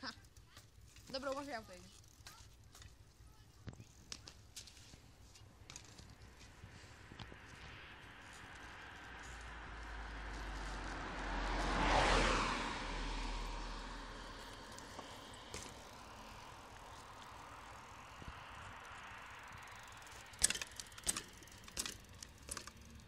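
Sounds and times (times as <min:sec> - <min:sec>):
vehicle passing: 0:06.1 - 0:23.0.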